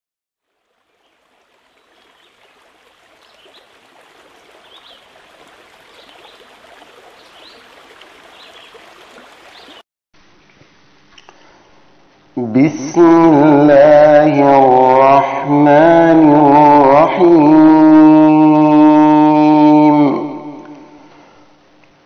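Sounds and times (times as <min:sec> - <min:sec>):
faint flowing water: 0:00.4 - 0:09.8.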